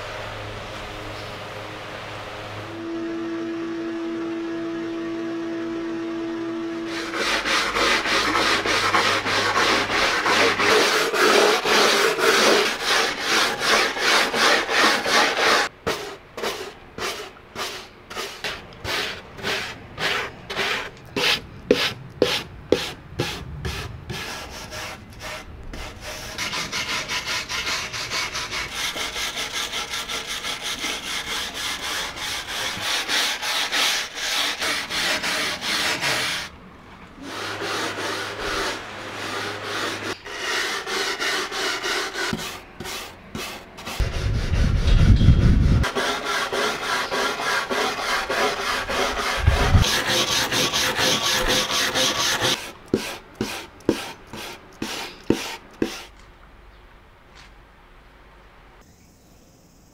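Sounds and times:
steady hum: 0.0s - 15.8s
hand rubbing wood: 6.9s - 36.5s, 37.2s - 56.2s.

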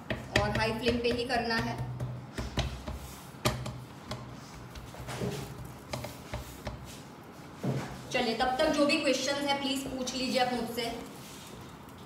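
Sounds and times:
hand tapping dough on iron pan: 0.0s - 7.0s.

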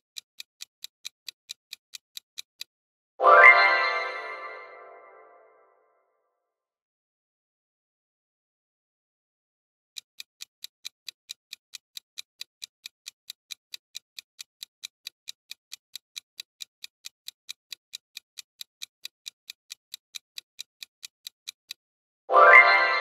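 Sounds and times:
clock ticking: 0.0s - 2.7s, 10.0s - 23.0s.

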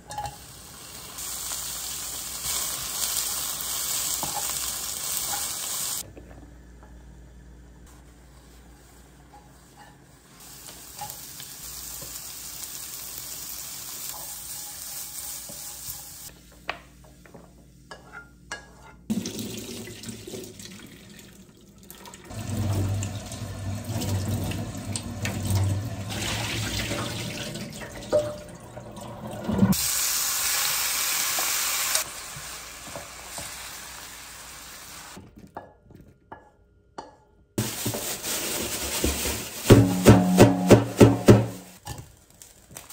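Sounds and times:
tap water running into sink: 19.1s - 29.8s.

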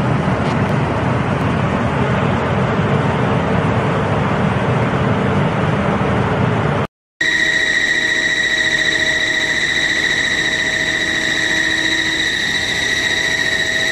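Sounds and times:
drying machine running: 7.2s - 13.9s.

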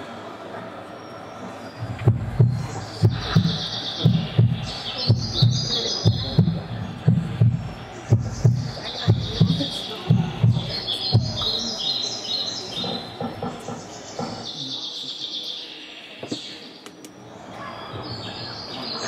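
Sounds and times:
birds chirping: 0.0s - 19.0s
low thumps: 1.8s - 11.6s.

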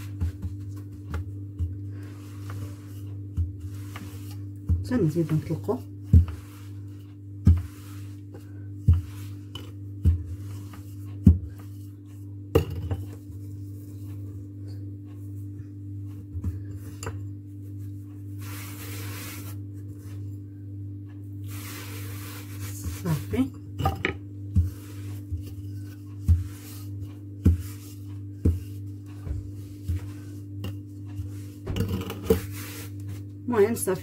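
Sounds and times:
soft gritty rubbing: 0.0s - 12.4s, 13.1s - 20.5s, 21.4s - 23.6s, 24.4s - 33.4s
rolling pin knocking: 27.4s - 32.5s.

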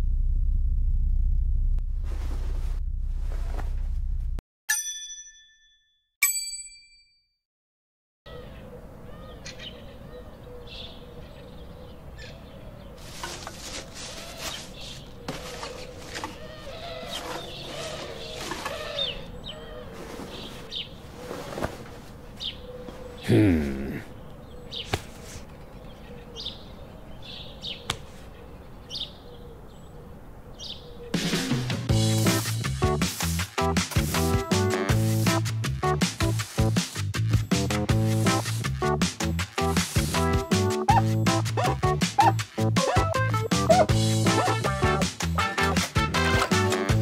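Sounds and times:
steady low hum: 0.0s - 4.4s
birds calling: 8.3s - 21.6s, 22.2s - 31.6s.

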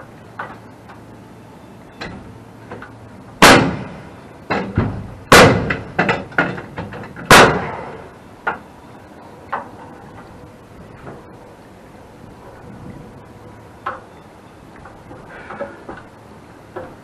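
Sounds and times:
nail gun shots: 3.4s - 3.9s, 5.3s - 5.8s, 7.3s - 8.0s.

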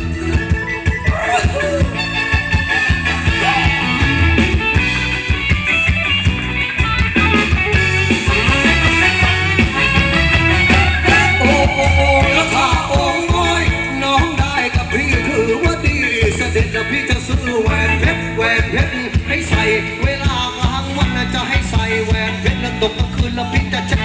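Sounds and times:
live band dance music: 0.0s - 24.0s
person singing: 1.0s - 2.1s, 10.7s - 24.0s.

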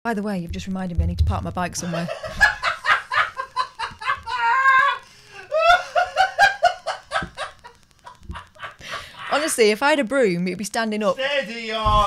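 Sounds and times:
woman laughing hard: 1.8s - 9.4s
woman squealing: 4.2s - 5.8s.

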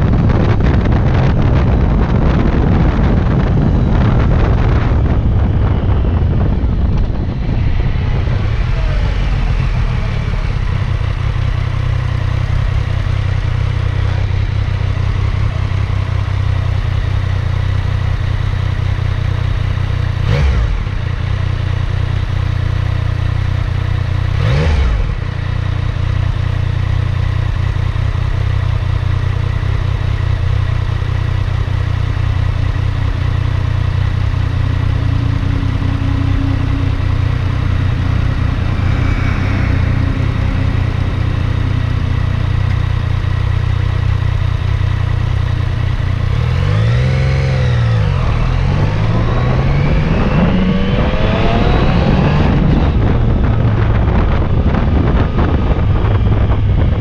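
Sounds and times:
motorcycle engine idling: 25.2s - 46.7s
motorcycle throttle blips: 32.7s - 46.3s.

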